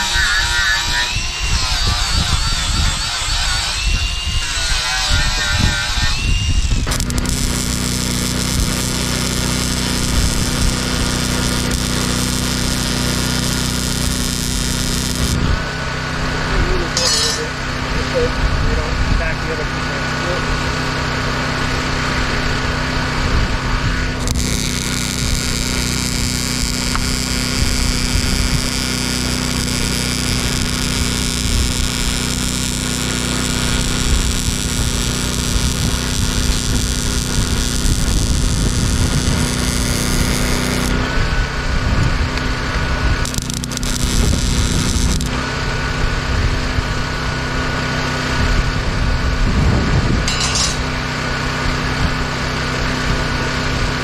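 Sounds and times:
angle grinder on steel: 0:00.0 - 0:15.5, 0:16.9 - 0:17.6, 0:24.1 - 0:41.1, 0:43.2 - 0:45.5, 0:50.3 - 0:51.1.

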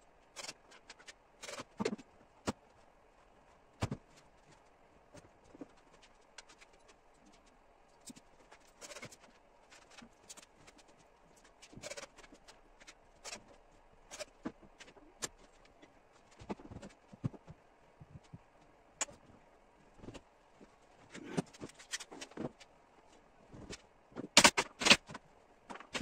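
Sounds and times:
clicks and knocks of metal mechanism: 0:00.4 - 0:02.6, 0:23.6 - 0:26.0.

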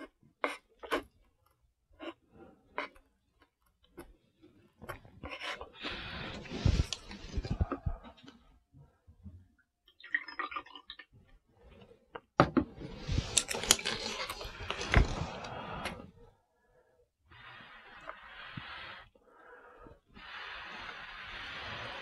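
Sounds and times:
liquid glugging into glass: 0:10.0 - 0:11.1.

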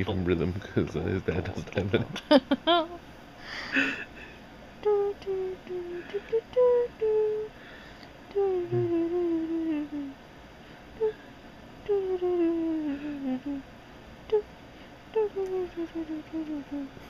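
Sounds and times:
woman humming: 0:04.8 - 0:07.5, 0:08.3 - 0:10.2, 0:11.0 - 0:11.2, 0:11.8 - 0:13.7, 0:14.3 - 0:14.5, 0:15.1 - 0:17.0.

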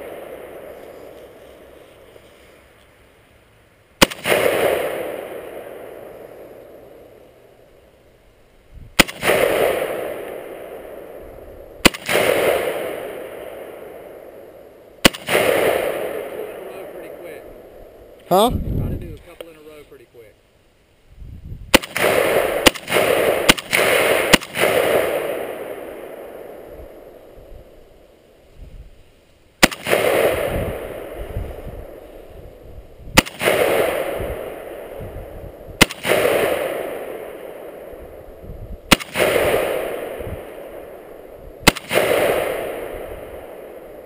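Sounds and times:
rifle shots with echo: 0:00.0 - 0:01.7, 0:04.0 - 0:07.1, 0:09.0 - 0:18.2, 0:21.7 - 0:27.3, 0:29.6 - 0:32.0, 0:33.1 - 0:44.0.

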